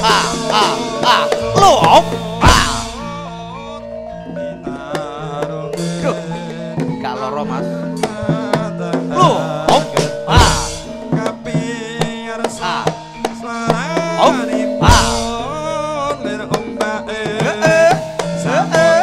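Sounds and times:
hand drum strokes: 0.0 - 3.4, 8.0 - 15.7
ringing metallophone notes: 0.0 - 19.0
wavering melodic line: 0.0 - 19.0
heavy low thump: 1.4 - 3.3.

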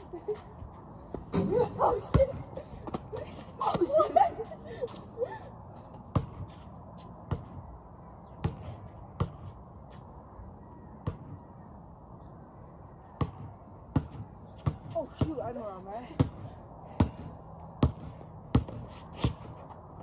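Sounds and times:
basketball bouncing on concrete: 1.1 - 3.9, 6.1 - 6.6, 7.2 - 7.7, 8.4 - 9.5, 13.2 - 19.8.

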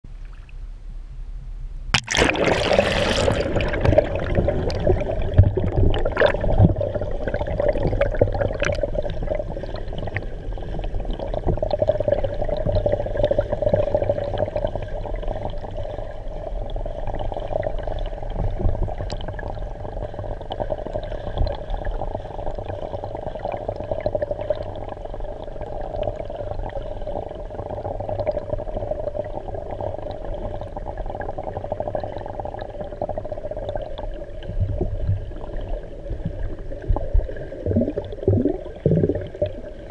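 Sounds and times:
low hum: 0.0 - 13.2
muffled underwater rush: 1.9 - 39.9
camera splashing into water: 2.0 - 4.0.

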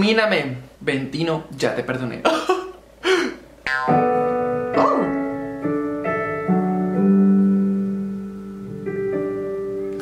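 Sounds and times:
piano playing slow chords: 3.6 - 10.0.

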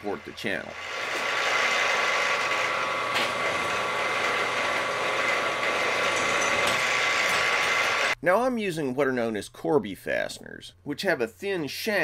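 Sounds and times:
drill boring through steel: 0.0 - 8.2.

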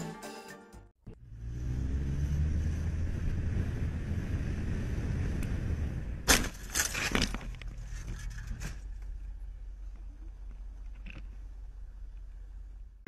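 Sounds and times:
car rumbling in traffic: 1.0 - 6.3.

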